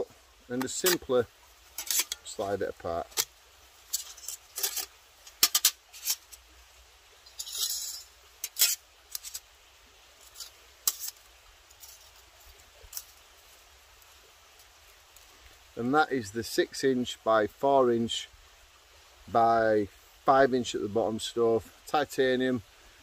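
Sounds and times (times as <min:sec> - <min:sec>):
metal sliding scrape: 0:00.7 - 0:03.3, 0:03.9 - 0:06.4, 0:07.3 - 0:09.4, 0:10.2 - 0:11.2
metal plates clinking: 0:01.7 - 0:02.4, 0:03.9 - 0:06.4, 0:07.2 - 0:09.4.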